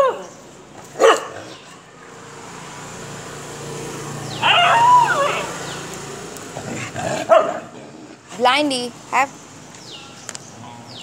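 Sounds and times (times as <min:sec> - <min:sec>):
dog whining: 0:04.4 - 0:05.5.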